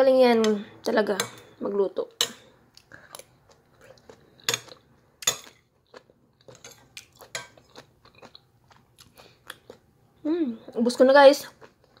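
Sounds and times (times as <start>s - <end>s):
chewing: 2.7s - 9.9s.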